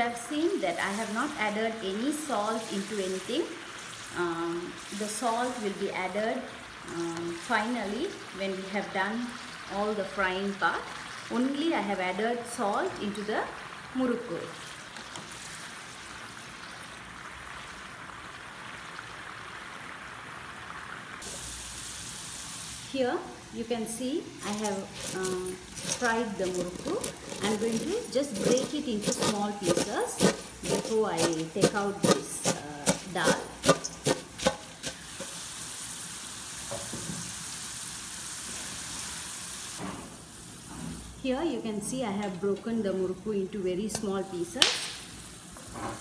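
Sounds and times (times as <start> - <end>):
food deep-frying in oil: 0.1 - 41.9.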